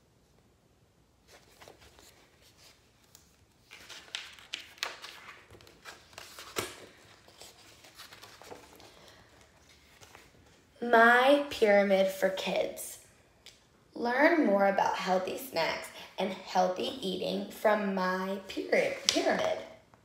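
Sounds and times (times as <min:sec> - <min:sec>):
book pages turning: 0:01.2 - 0:10.7, 0:18.8 - 0:19.6.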